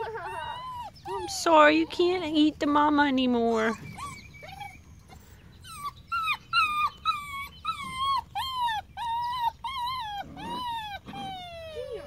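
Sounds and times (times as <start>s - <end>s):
dog whimpering: 0.0s - 2.4s, 3.4s - 12.0s.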